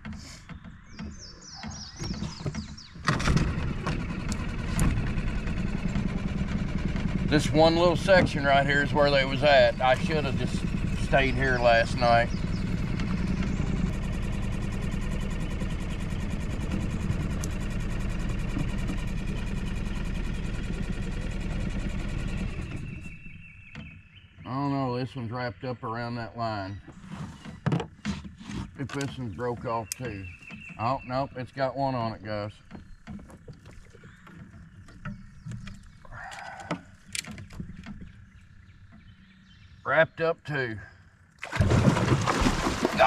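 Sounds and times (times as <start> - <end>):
bird chirping: 0.0 - 3.1, 7.4 - 16.4, 22.0 - 28.1, 28.8 - 41.3
outboard motor running: 0.0 - 40.0, 40.6 - 43.0.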